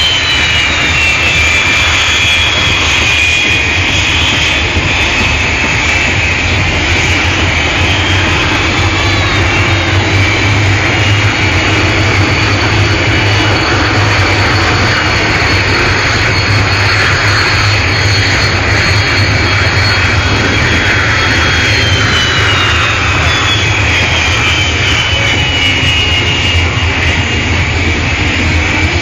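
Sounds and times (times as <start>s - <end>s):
jet engines whining: 0.0s - 29.0s.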